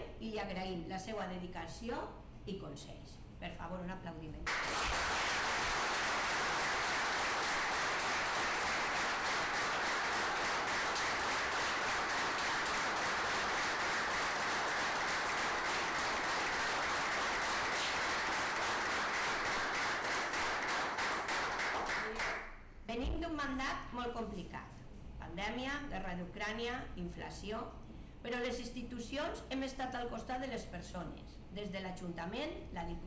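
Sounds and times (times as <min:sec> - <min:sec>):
small audience applauding: 0:04.5 - 0:22.5.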